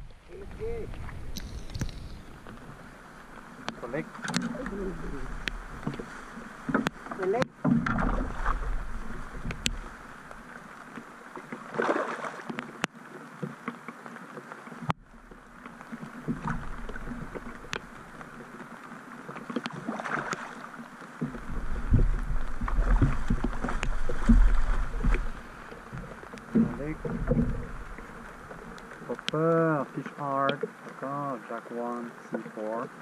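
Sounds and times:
rain on a lake: 0.0 - 33.0
fish splashing in water: 11.6 - 12.5.

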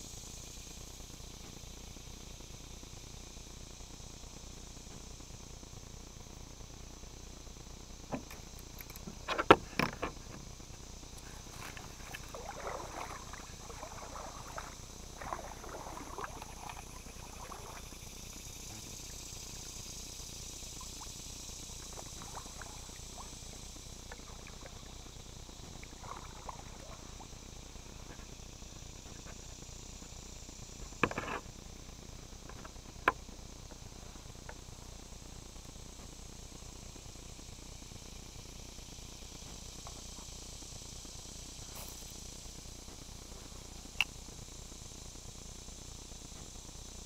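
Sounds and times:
insect drone: 0.0 - 47.0
kayak knocking: 11.4 - 17.9.

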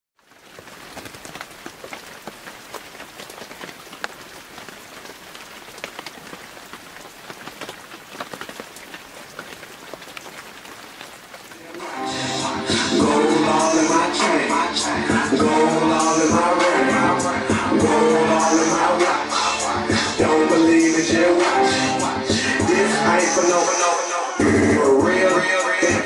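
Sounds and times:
crackling hiss with sharp clicks: 0.2 - 14.4
music: 11.7 - 26.0.

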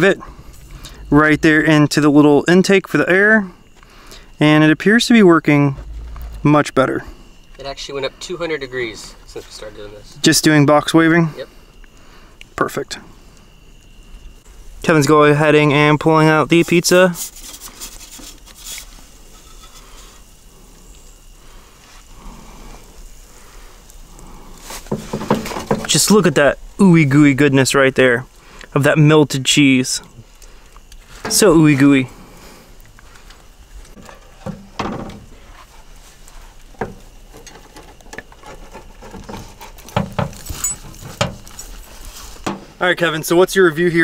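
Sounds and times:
steady hiss: 0.0 - 44.0
metal pizza peel scraping stone: 17.2 - 20.2.

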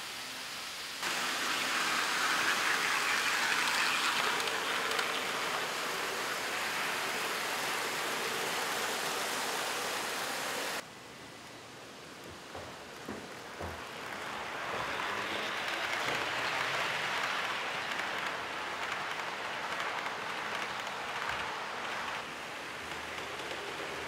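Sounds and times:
model trains running: 1.0 - 10.8, 12.2 - 24.0.

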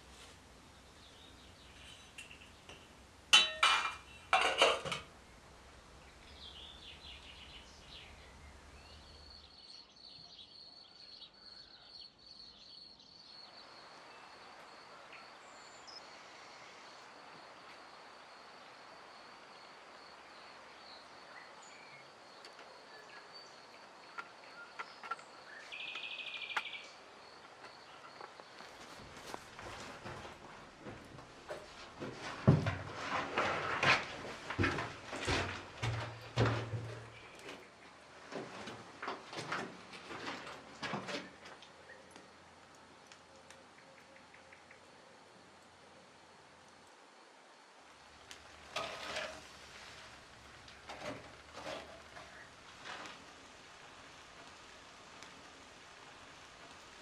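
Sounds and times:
small metal pot clinking: 1.8 - 5.1.

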